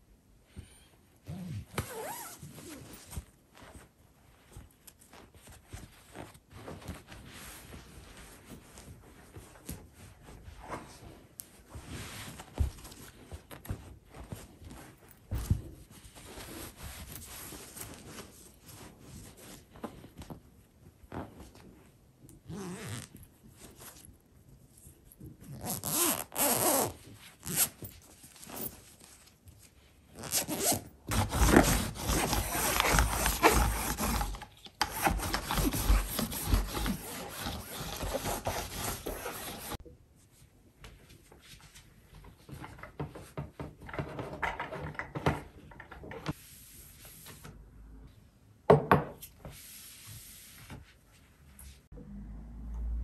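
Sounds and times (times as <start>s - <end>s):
lint roller rubbing on fabric: 30.2s - 39.8s.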